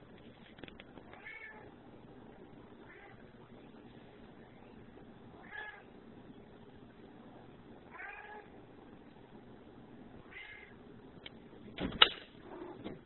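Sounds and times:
cat meowing: 1.2s - 1.7s, 7.9s - 8.5s, 10.2s - 10.7s.

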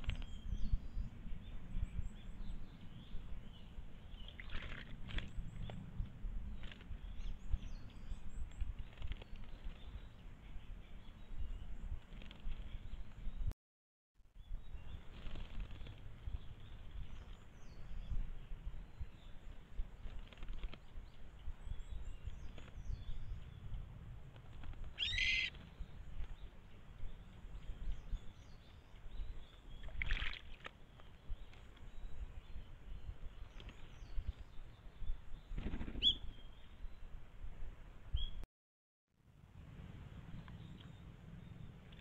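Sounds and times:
low steady rumble: 21.0s - 28.4s, 39.3s - 42.0s.

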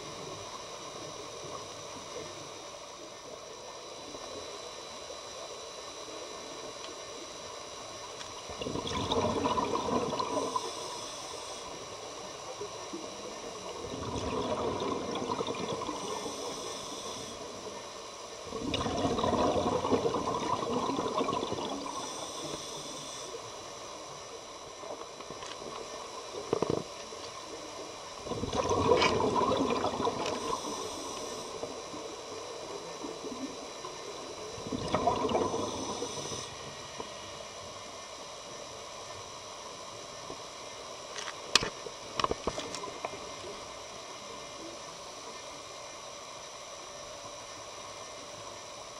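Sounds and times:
regulator hissing on inhale: 4.0s - 24.9s, 25.8s - 38.8s
bubbling scuba exhalations: 8.6s - 10.8s, 13.8s - 16.7s, 18.5s - 22.6s, 28.2s - 31.7s, 34.6s - 36.4s.

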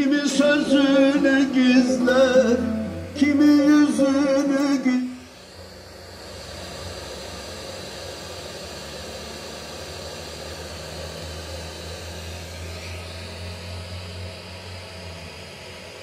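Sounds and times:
low hum: 0.0s - 9.5s.

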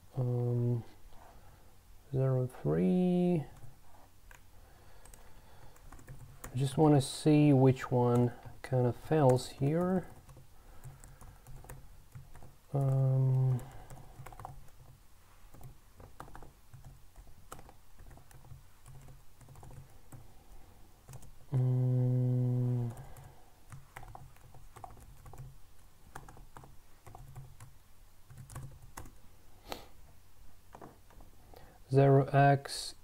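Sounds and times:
man humming: 0.2s - 0.9s, 12.8s - 13.7s, 21.5s - 23.2s
computer keyboard typing: 5.0s - 6.7s, 8.1s - 20.3s, 21.0s - 21.7s, 22.7s - 27.7s, 28.3s - 29.2s.

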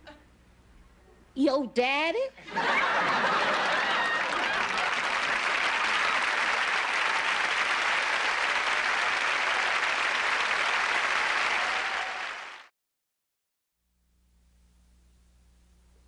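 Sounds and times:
audience applauding: 2.7s - 12.7s.

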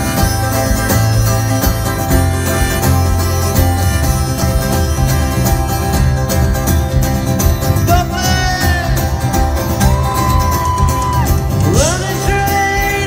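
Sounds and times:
rock band playing: 0.0s - 13.0s
strummed acoustic guitar: 0.0s - 13.0s
person singing: 11.5s - 13.0s.

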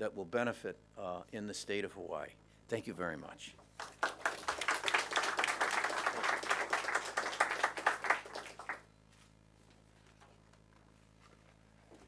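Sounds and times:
crowd applauding: 3.8s - 8.9s.

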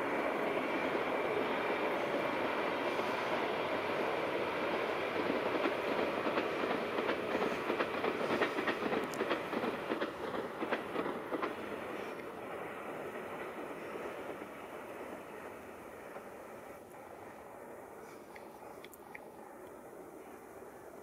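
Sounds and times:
train wheels clicking over rail joints: 0.8s - 16.9s.

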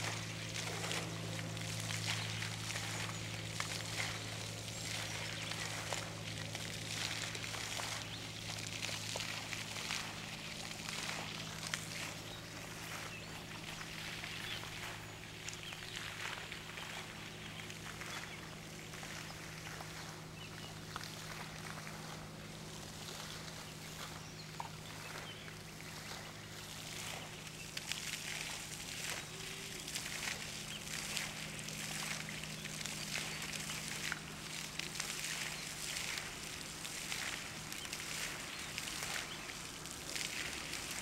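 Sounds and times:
low hum: 0.0s - 41.0s.

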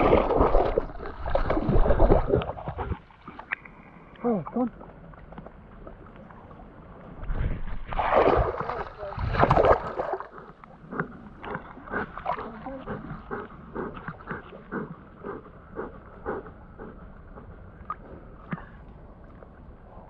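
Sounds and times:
water splashing: 0.0s - 15.0s
dog panting: 10.3s - 17.7s.

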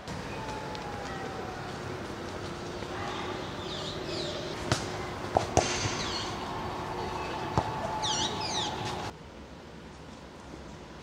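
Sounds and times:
small birds chirping: 2.7s - 5.2s, 5.9s - 9.1s.

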